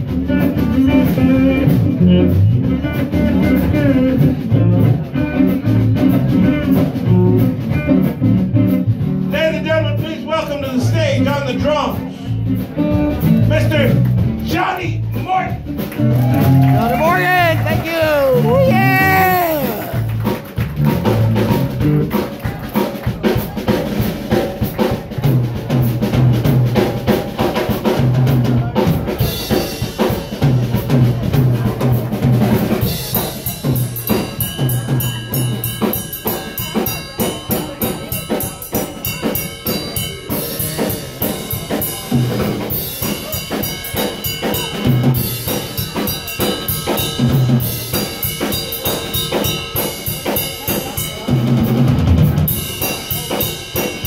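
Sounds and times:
drum kit beat: 0:00.0 - 0:09.4, 0:12.0 - 0:54.0
electric bass: 0:00.0 - 0:22.4, 0:23.2 - 0:29.4, 0:30.3 - 0:35.6.

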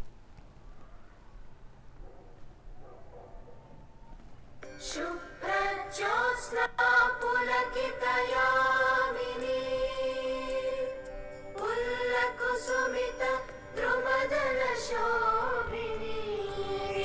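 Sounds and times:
choral singing ringtone: 0:04.6 - 0:17.0.

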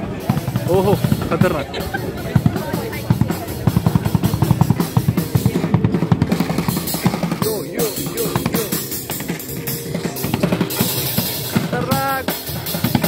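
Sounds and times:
drum kit fast beat: 0:00.0 - 0:13.0.

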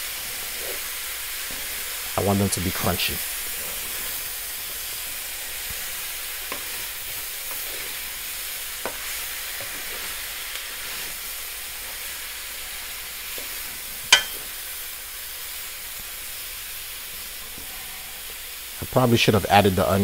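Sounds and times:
vegetables sizzling in a pan: 0:00.0 - 0:20.0
wooden spatula stirring: 0:00.3 - 0:02.2, 0:03.2 - 0:12.1.

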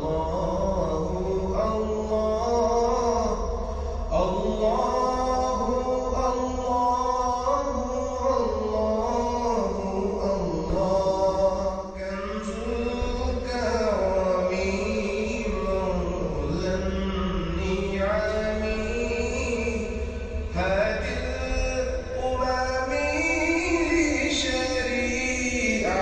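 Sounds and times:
person chanting: 0:00.0 - 0:26.0
steady low hum: 0:00.0 - 0:26.0.

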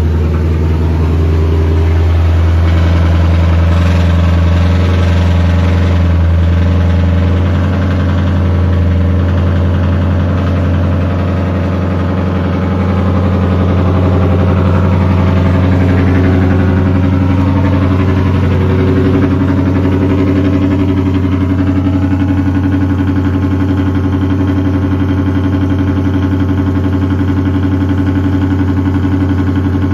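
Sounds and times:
car exhaust idling loudly: 0:00.0 - 0:29.9.

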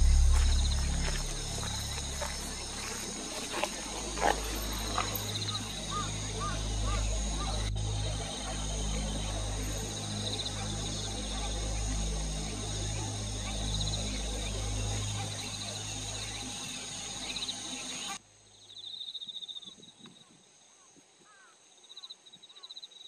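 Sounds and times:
steady low rumble: 0:00.0 - 0:18.2
insects trilling in pulses: 0:00.0 - 0:19.7.

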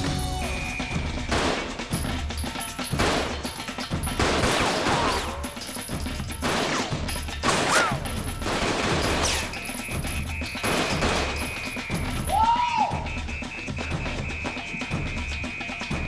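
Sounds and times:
rapid gunfire: 0:01.3 - 0:02.1, 0:02.9 - 0:05.6, 0:06.3 - 0:09.9, 0:10.5 - 0:11.8.

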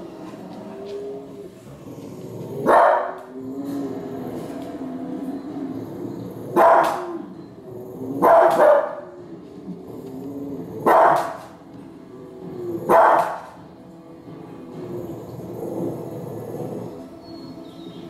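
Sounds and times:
television documentary soundtrack: 0:00.0 - 0:18.0
dog barking: 0:02.6 - 0:03.3, 0:06.5 - 0:07.3, 0:08.2 - 0:09.0, 0:10.8 - 0:11.5, 0:12.9 - 0:13.6.

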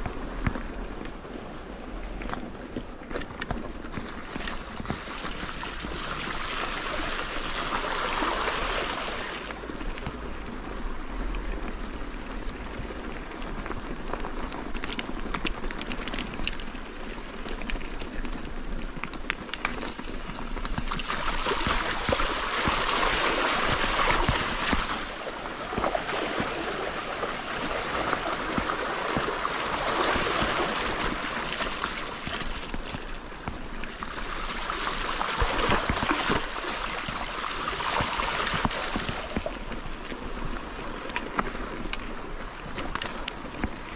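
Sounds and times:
river water rushing: 0:05.0 - 0:09.5, 0:20.9 - 0:33.3, 0:34.0 - 0:39.6.

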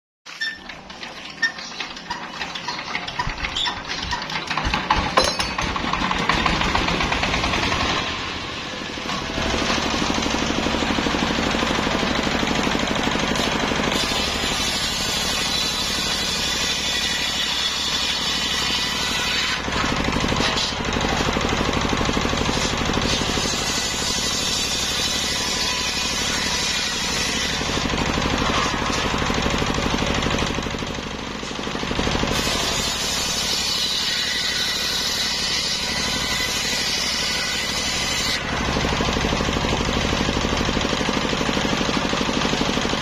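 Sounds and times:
circular saw cutting logs: 0:00.4 - 0:43.0
diesel engine starting and running: 0:02.0 - 0:16.8, 0:19.6 - 0:23.9, 0:27.6 - 0:32.8, 0:38.4 - 0:43.0.

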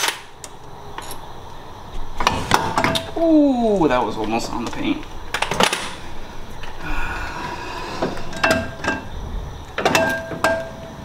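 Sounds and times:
metal clanks and knocks: 0:02.2 - 0:03.2, 0:08.0 - 0:11.0.

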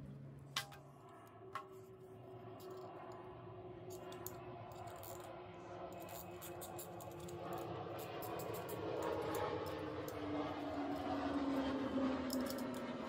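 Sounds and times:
metal tools clicking and clinking: 0:06.0 - 0:10.2, 0:12.3 - 0:12.9.

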